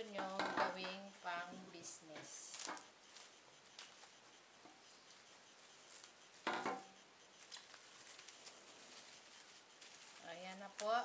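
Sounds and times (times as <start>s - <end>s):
faint ticks: 0.0s - 11.0s
plastic cling wrap crinkling: 2.5s - 4.0s, 7.4s - 11.0s.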